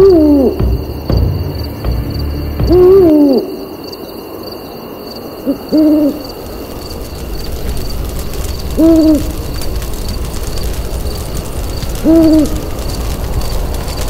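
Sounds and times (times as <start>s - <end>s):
owl hooting: 0.0s - 0.6s, 2.7s - 4.1s, 5.4s - 6.4s, 8.8s - 9.4s, 12.0s - 12.7s.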